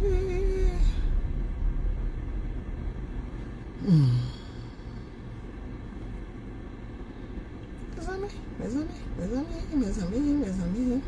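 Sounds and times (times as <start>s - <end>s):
car interior hum: 0.0s - 11.0s
woman sighing: 3.8s - 5.0s.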